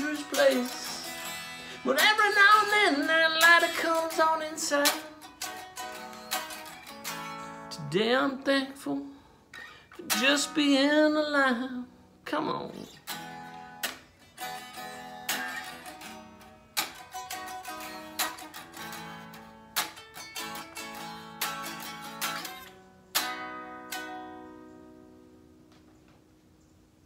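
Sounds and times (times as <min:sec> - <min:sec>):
electric guitar chords and notes: 0:00.0 - 0:26.2.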